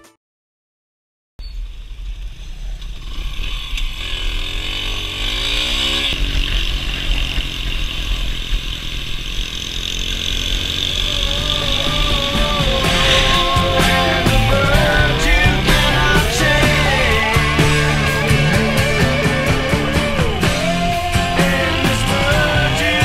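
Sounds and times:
small motorcycle engine: 1.5 - 23.0
wind rumble on microphone: 11.0 - 18.7.

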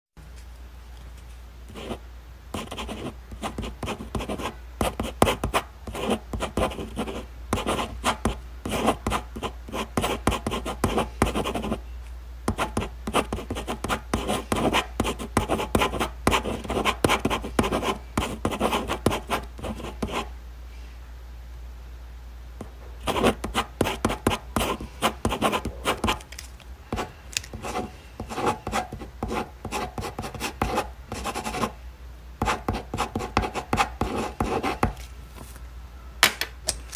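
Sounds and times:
ballpoint pen writing on paper: 2.6 - 11.8, 12.5 - 20.2, 23.1 - 26.2, 27.0 - 31.7, 32.4 - 35.0.

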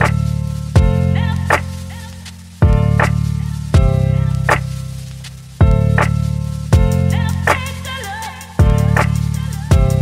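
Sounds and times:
slow beat background music: 0.0 - 10.0.

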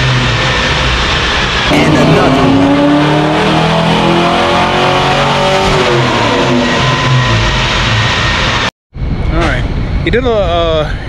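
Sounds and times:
car engine revving on dyno: 0.0 - 8.7.

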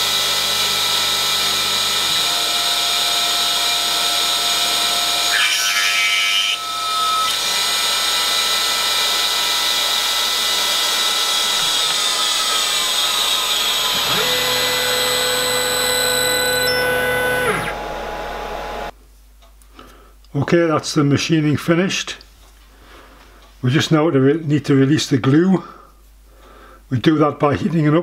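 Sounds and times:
drill cutting into plate: 0.0 - 18.9
drill spindle whine: 0.0 - 18.9
machine table moving hum: 11.4 - 18.9.

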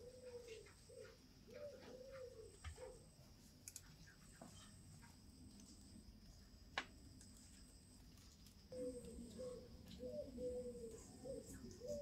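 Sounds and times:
dove cooing: 0.0 - 3.0, 8.7 - 12.0.

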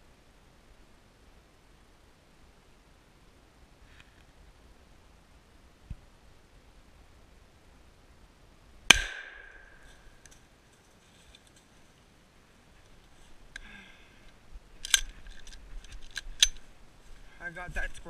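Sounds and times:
shotgun shot with echo: 8.9 - 9.7
light clicks and rustles: 9.8 - 12.0, 12.7 - 17.3.

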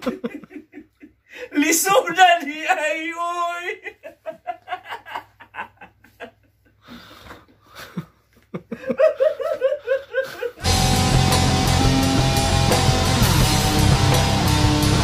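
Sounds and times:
man laughing hard: 0.0 - 1.5, 2.5 - 6.8, 7.7 - 11.2
loud guitar music: 10.6 - 15.0.

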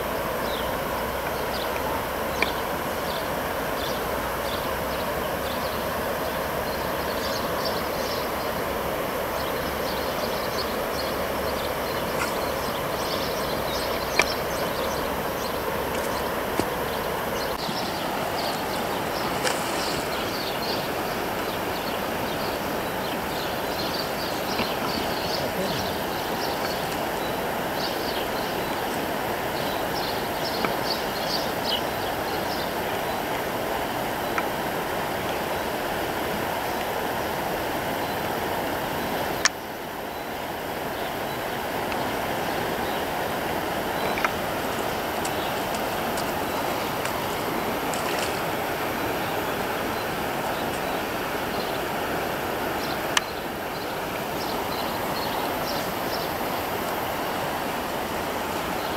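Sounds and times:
river water rushing: 0.0 - 58.9.

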